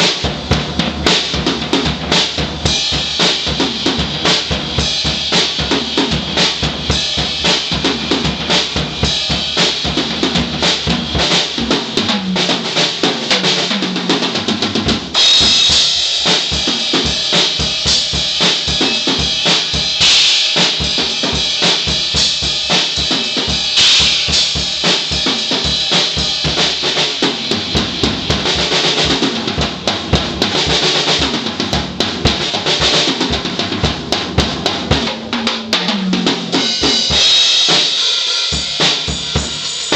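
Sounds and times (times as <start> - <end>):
drum kit playing: 0.0 - 39.9
cymbal crashes: 15.2 - 21.0, 36.6 - 39.9.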